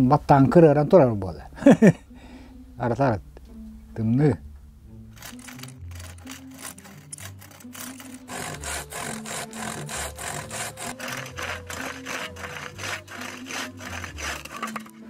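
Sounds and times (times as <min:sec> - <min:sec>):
hand saw cutting wood: 0:05.2 - 0:15.0.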